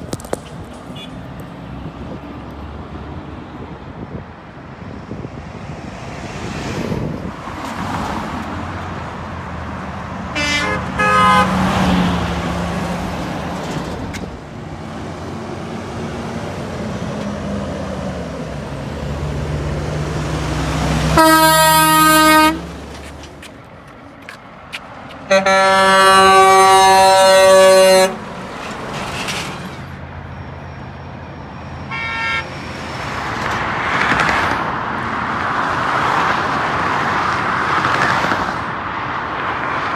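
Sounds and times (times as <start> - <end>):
truck engine drone: 0.0 - 33.9
traffic noise: 0.0 - 39.9
truck horn blasts: 10.3 - 11.7, 21.1 - 22.7, 25.3 - 28.3, 31.9 - 32.5.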